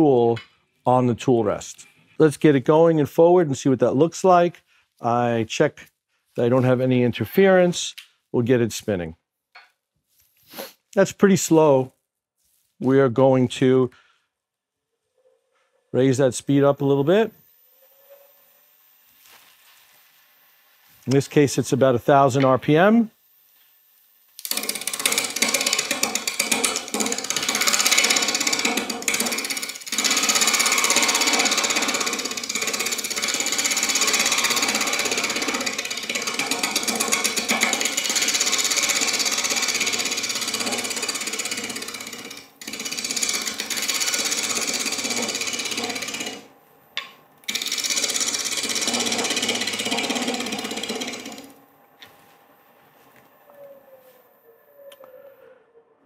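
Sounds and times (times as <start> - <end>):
tool scraping spinning wood on lathe: 24.4 - 51.6.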